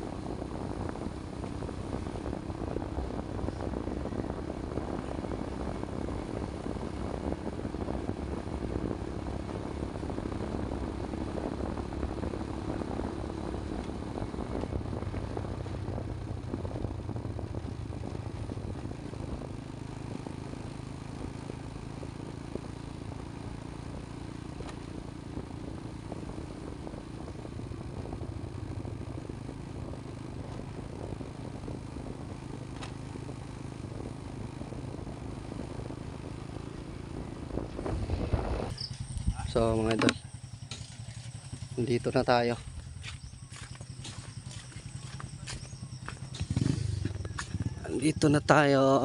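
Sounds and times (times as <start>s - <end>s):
motorcycle engine running: 0.0s - 49.0s.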